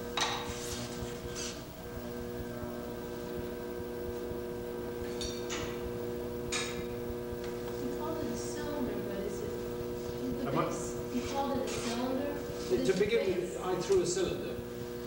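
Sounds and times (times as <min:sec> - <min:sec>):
low hum: 0:00.0 - 0:12.8.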